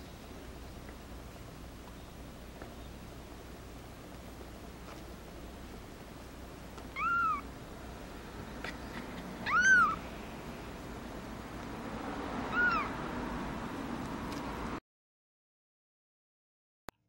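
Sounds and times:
kitten mewing: 0:06.9 - 0:07.5, 0:09.4 - 0:10.0, 0:12.5 - 0:12.9.

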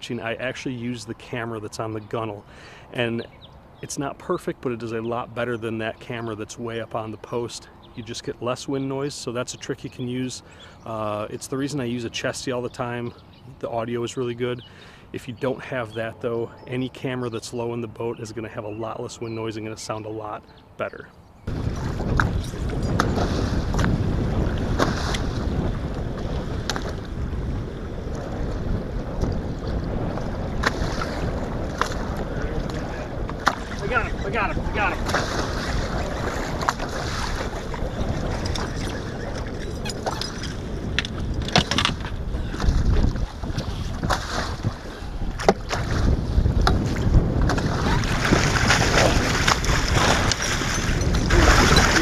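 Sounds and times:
waves slapping boat hull: 0:21.4 - 0:52.0
wind rumbling on microphone: 0:21.4 - 0:52.0
water splashing: 0:21.5 - 0:52.0.

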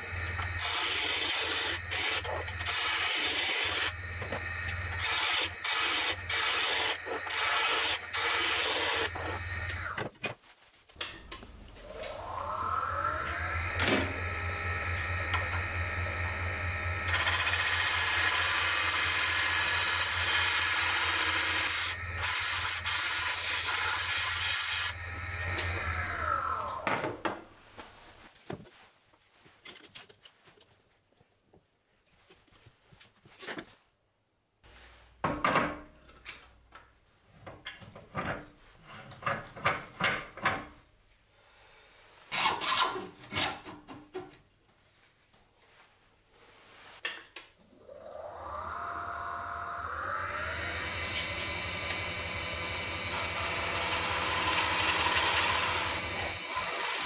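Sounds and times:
wood lathe motor hum: 0:00.0 - 0:10.0, 0:11.7 - 0:27.1, 0:47.7 - 0:57.0
tool scraping spinning wood: 0:00.0 - 0:10.1, 0:11.8 - 0:27.2, 0:50.2 - 0:57.0
motor winding down: 0:11.7 - 0:26.9, 0:47.6 - 0:57.0.

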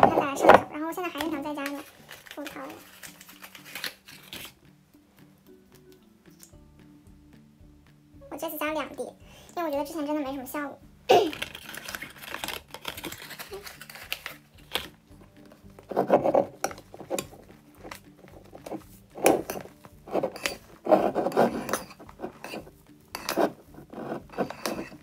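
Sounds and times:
slime scraping and squishing: 0:11.1 - 0:15.0, 0:15.8 - 0:25.0
spoon clinking against bowl: 0:21.3 - 0:23.5.

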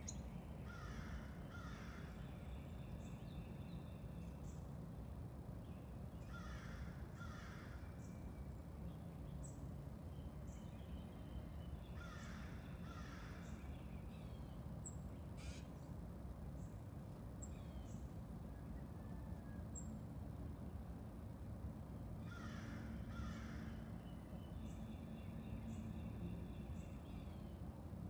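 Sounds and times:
low background rumble: 0:00.0 - 0:28.0
crow cawing: 0:00.7 - 0:02.2, 0:06.3 - 0:07.8, 0:12.0 - 0:13.5, 0:22.2 - 0:23.8.

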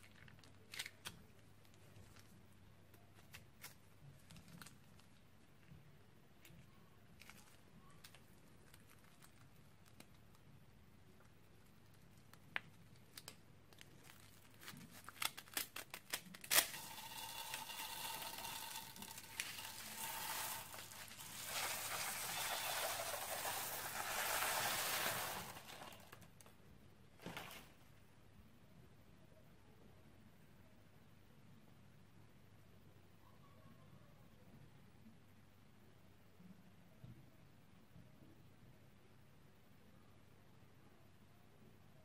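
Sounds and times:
plastic bag crinkling: 0:13.0 - 0:26.4
scissors snipping plastic bag: 0:14.7 - 0:26.2
beads pouring with rustling hiss: 0:16.6 - 0:26.2.

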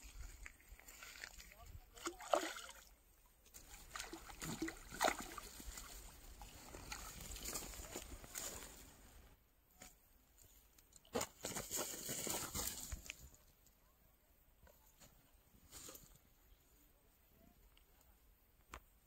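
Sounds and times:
fish thrashing in grass: 0:03.7 - 0:08.7.

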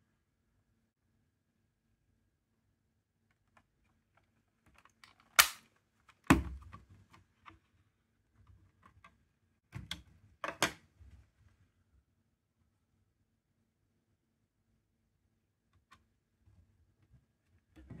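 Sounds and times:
plastic snap: 0:04.8 - 0:06.6.

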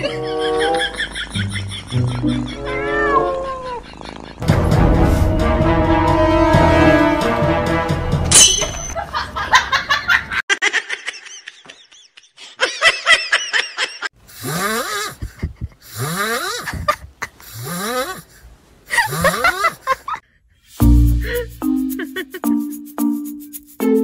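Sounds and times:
comic laugh-like vocal effects: 0:00.0 - 0:04.4, 0:09.0 - 0:18.2, 0:18.9 - 0:20.2, 0:21.2 - 0:22.5.

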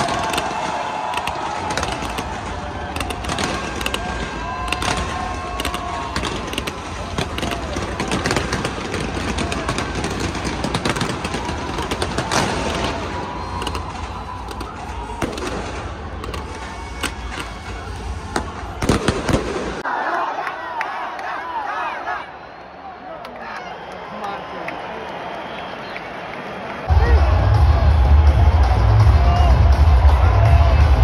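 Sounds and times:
fireworks bangs and crackles: 0:00.0 - 0:19.8.

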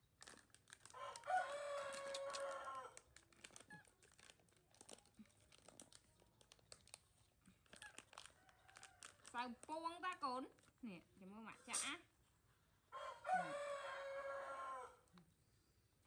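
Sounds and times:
plastic snack packet crinkling: 0:00.0 - 0:10.8
rooster crowing: 0:01.0 - 0:03.0, 0:12.9 - 0:15.0.

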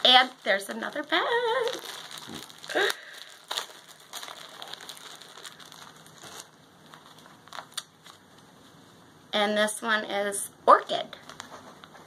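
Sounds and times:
plastic bag crinkling: 0:00.0 - 0:08.3.

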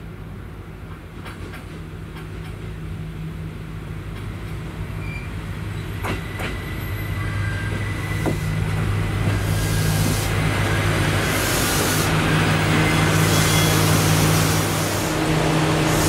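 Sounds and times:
diesel railcar engine humming: 0:00.0 - 0:16.0
faint high squeal: 0:05.0 - 0:08.6, 0:13.2 - 0:13.8.

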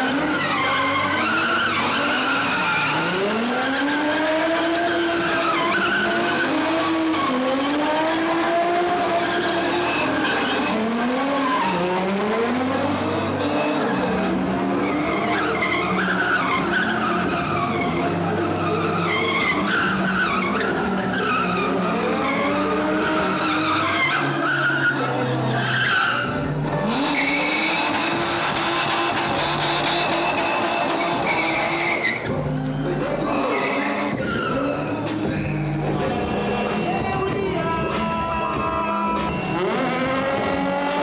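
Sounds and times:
car engines revving hard: 0:00.0 - 0:41.0
tyres screeching and skidding: 0:00.0 - 0:41.0.

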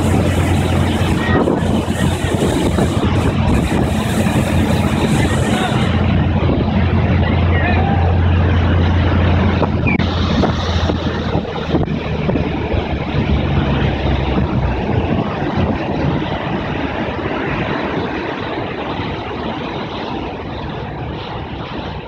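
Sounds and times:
churning wake water: 0:00.0 - 0:22.0
low engine drone: 0:00.0 - 0:22.0
wind rushing: 0:00.0 - 0:22.0.

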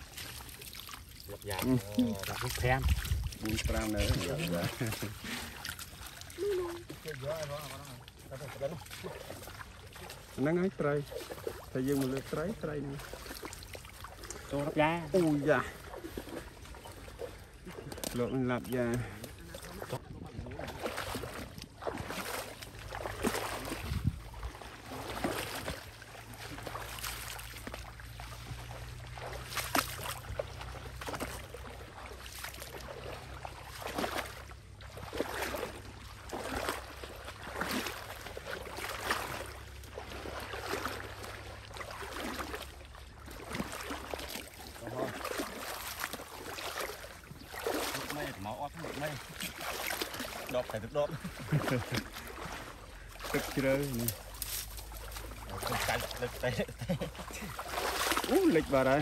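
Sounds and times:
wading through water splashing: 0:00.0 - 0:59.0.

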